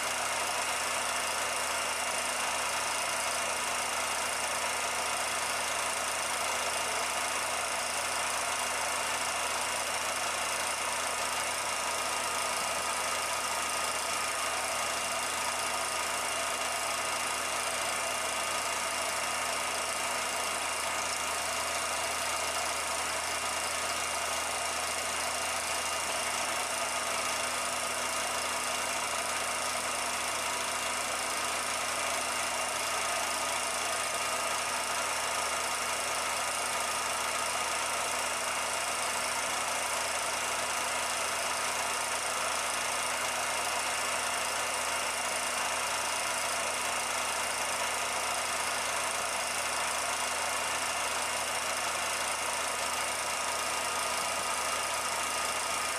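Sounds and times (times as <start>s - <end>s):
machine running with steady hum: 0.0s - 55.9s.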